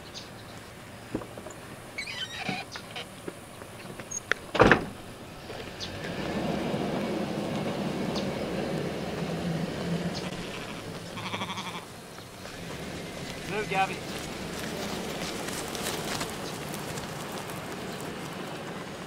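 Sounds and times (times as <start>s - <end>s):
truck engine and tyres: 0.0s - 19.0s
sheep bleating: 10.1s - 11.9s.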